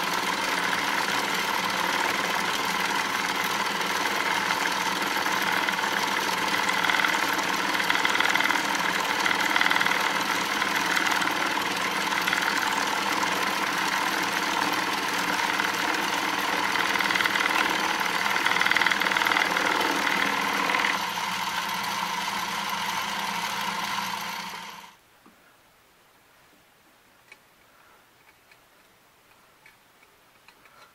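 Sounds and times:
router bit cutting metal: 0.0 - 24.9
lathe machine hum: 0.0 - 25.0.

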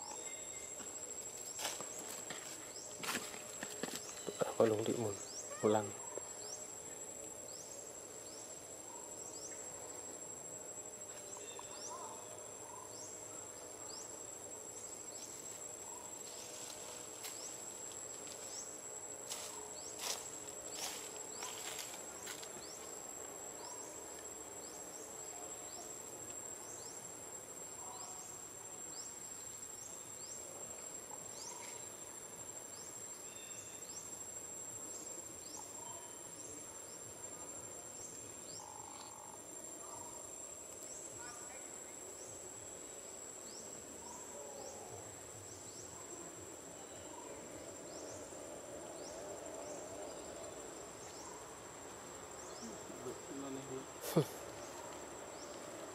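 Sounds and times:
insect chorus shrill tone: 0.0 - 10.1, 11.1 - 27.1, 32.7 - 36.7.

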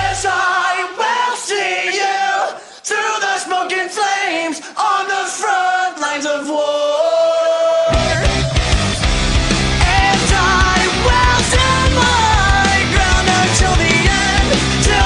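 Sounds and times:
full rock band: 0.0 - 1.8, 7.8 - 15.0
male vocals chanted: 9.8 - 15.0.

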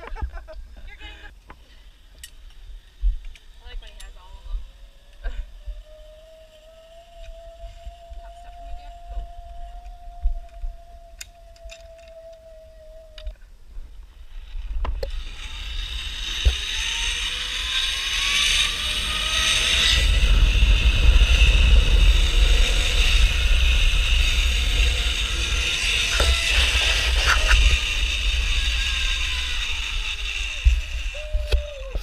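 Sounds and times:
zip-line pulleys whirring on cable: 2.0 - 13.4, 14.2 - 32.0
wind rumble on microphone: 7.2 - 32.0.

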